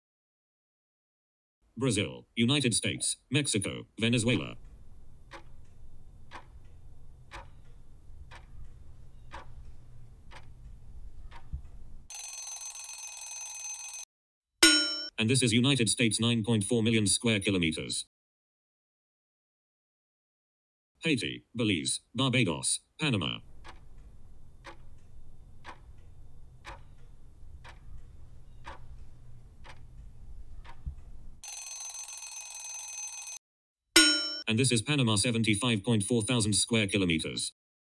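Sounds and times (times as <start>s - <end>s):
low steady hum: 4.1s - 12.1s
countdown timer ticking: 4.2s - 11.6s, 23.4s - 29.0s, 29.6s - 30.8s, 34.0s - 34.4s.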